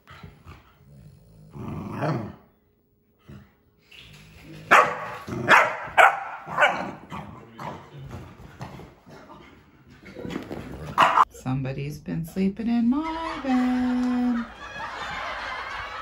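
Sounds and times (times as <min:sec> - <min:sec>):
dog barking: 0:04.7 - 0:07.1, 0:11.0 - 0:11.3.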